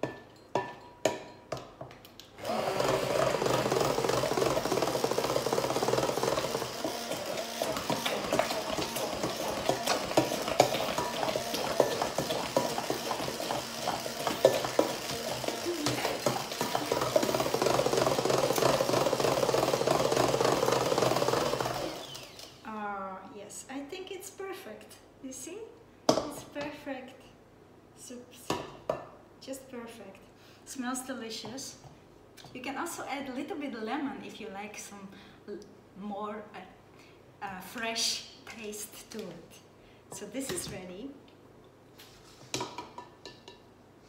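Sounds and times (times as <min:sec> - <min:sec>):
stick blender motor running: 0:02.4 - 0:22.6.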